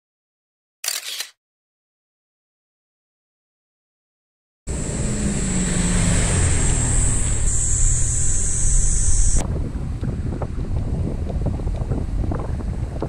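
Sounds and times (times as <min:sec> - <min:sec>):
car driving past: 0:04.7 - 0:09.4
road noise inside car cabin: 0:04.7 - 0:10.4
wind on microphone: 0:04.8 - 0:13.0.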